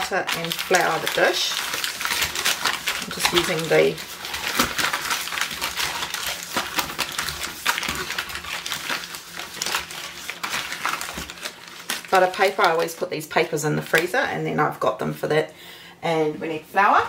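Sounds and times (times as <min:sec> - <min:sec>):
paper crinkling on ceramic dish: 0:00.0 - 0:13.0.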